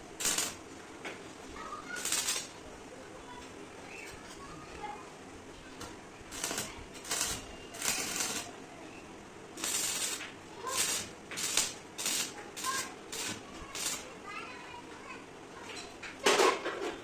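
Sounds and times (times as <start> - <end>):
welding arc crackling: 0.0 - 0.8, 1.8 - 2.6, 5.8 - 8.6, 9.5 - 14.2.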